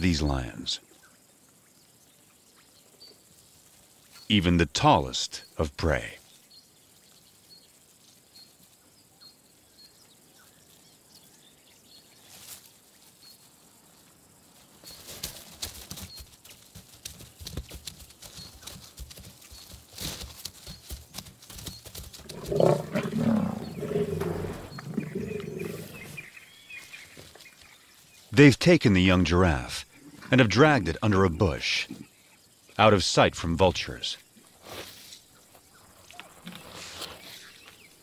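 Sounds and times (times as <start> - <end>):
lions growling: 22.2 - 26.3.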